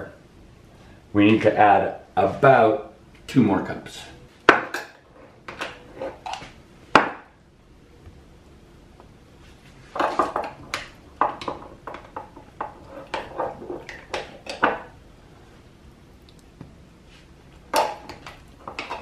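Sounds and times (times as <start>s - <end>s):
metal spoon scraping a jar: 12.7s - 14.6s.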